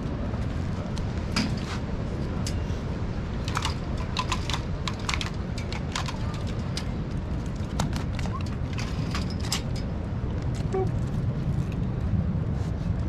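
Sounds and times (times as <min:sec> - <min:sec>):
crab cage clicks and clacks: 0:03.4 - 0:09.8.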